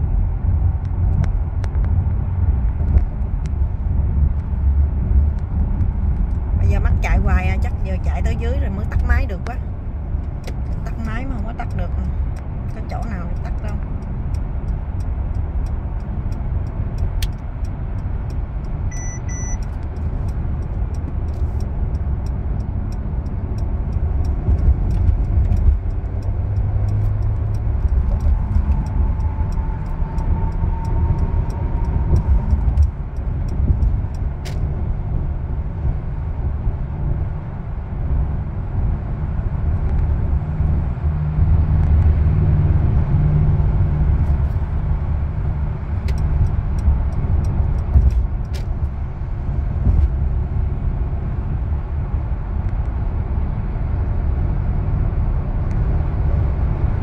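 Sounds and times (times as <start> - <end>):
car road and engine noise: 0.0 - 57.0
double beep: 18.9 - 19.6.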